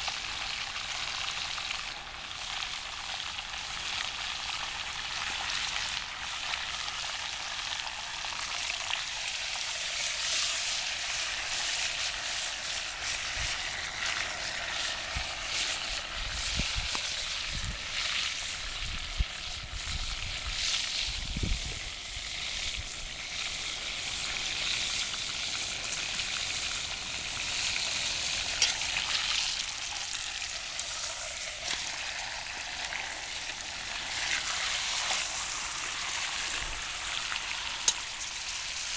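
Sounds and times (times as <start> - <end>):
meat sizzling in a pot: 0.0 - 38.9.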